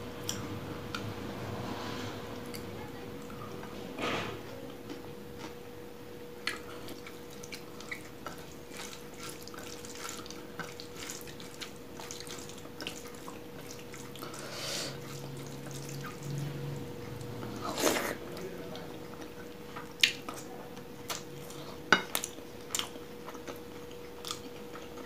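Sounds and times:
fingers squelching rice and gravy: 6.5 - 16.4.

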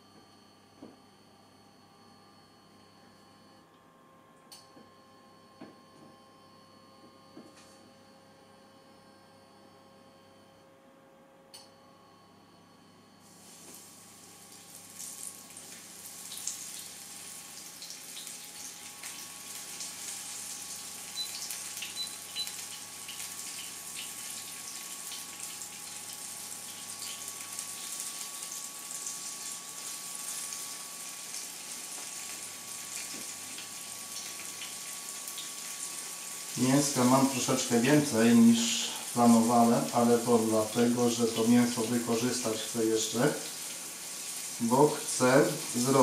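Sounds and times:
meat sizzling in a frying pan: 13.2 - 46.0.

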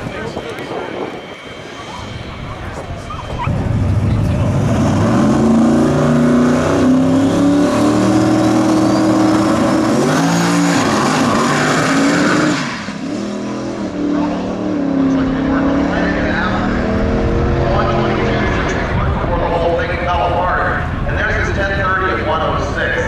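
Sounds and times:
drag car engine revving: 3.5 - 20.1.

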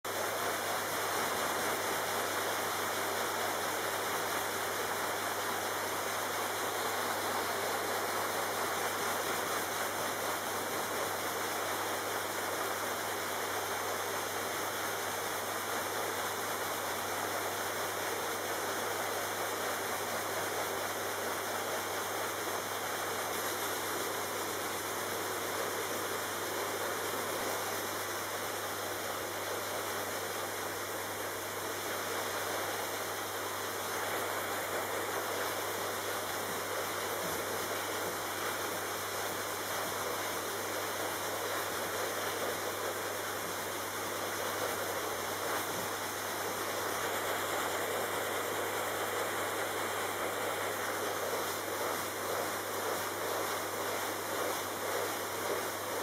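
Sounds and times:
vacuum cleaner running: 44.4 - 56.0.

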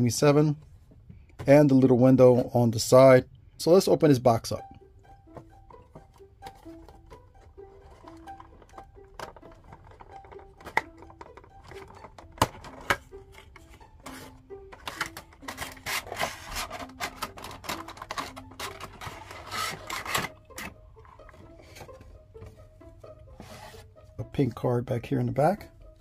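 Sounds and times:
soft background music: 0.0 - 26.0
cardboard and plastic rasping rub: 6.6 - 22.1, 23.3 - 24.0.

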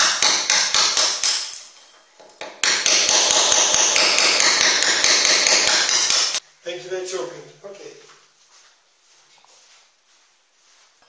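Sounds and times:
hammer striking masonry wall: 0.0 - 6.4.

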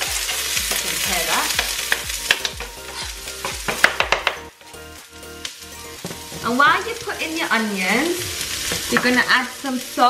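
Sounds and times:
onions sizzling in a pan: 0.0 - 10.0
utensil clicking against pan: 1.6 - 2.8.

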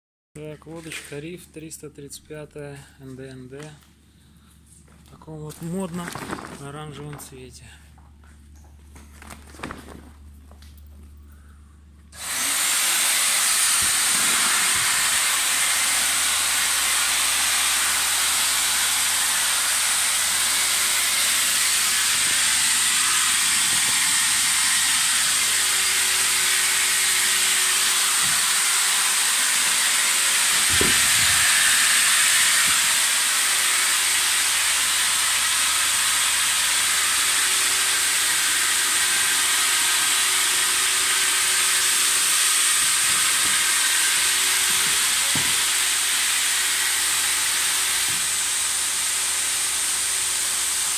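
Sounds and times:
electric air pump hissing: 12.1 - 50.9.

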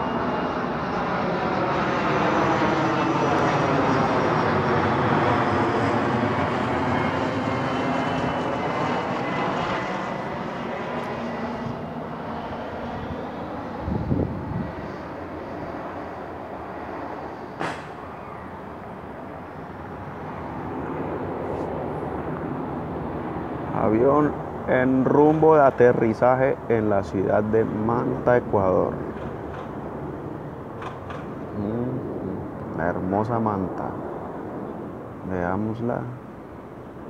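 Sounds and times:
airplane flying overhead: 0.0 - 37.0
brief thump: 17.6 - 18.0.

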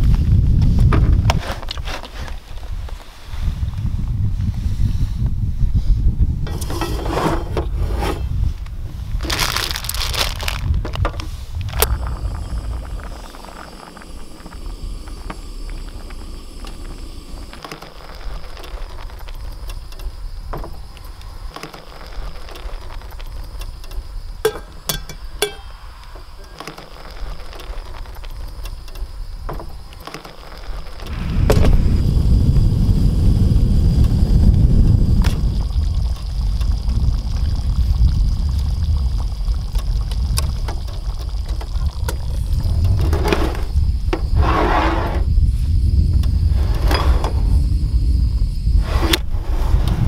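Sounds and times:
wind buffeting microphone: 0.0 - 17.6, 31.0 - 50.0
low background rumble: 2.6 - 50.0.

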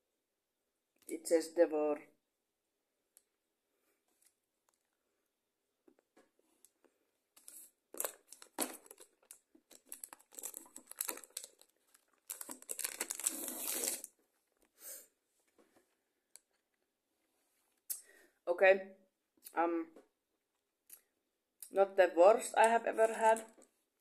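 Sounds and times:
wrapper crinkling and tearing: 7.4 - 14.2.

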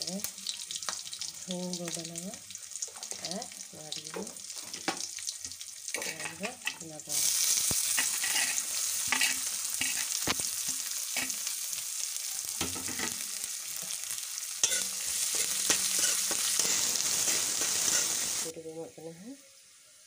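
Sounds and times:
onions sizzling in hot oil: 0.0 - 20.0
stirring knocks and scrapes on pan: 4.0 - 6.8, 7.9 - 11.4, 14.6 - 18.2.

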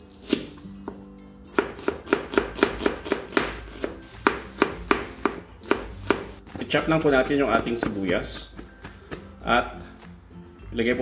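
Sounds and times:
knife striking cutting board: 1.6 - 9.3.

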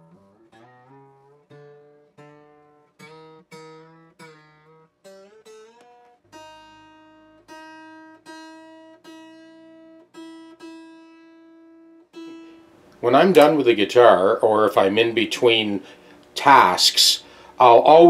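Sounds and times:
guitar strings plucked while tuning: 0.0 - 13.8.

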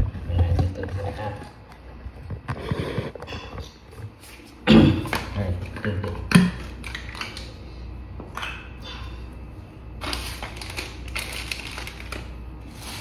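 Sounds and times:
low steady hum: 0.0 - 13.0
plastic bag crinkling: 10.0 - 13.0.

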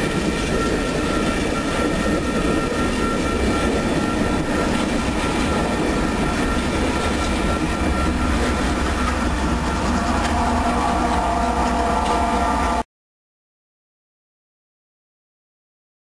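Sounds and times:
locomotive engine rumble: 0.0 - 12.8
train wheels squealing on rails: 0.0 - 12.8.

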